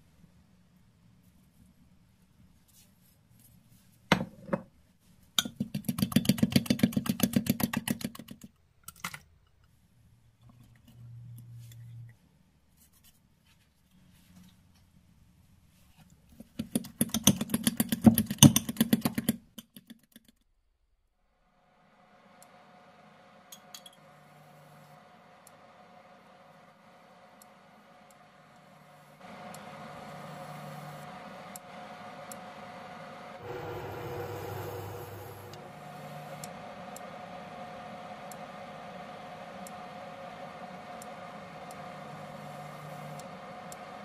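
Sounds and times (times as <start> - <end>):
utensil beating batter in bowl: 5.4 - 8.4.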